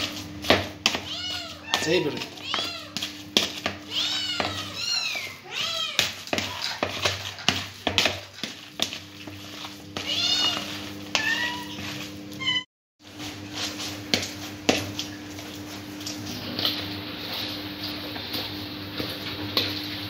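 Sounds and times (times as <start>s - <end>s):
food mixed in plastic bowl: 0.0s - 20.0s
cat meowing: 1.0s - 3.0s, 3.8s - 6.7s, 10.0s - 12.6s.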